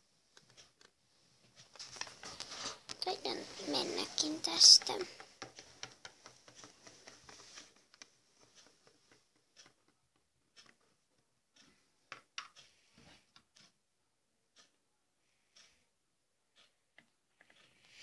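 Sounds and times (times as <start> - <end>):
plastic toy figures tapping on table: 4.6 - 7.4.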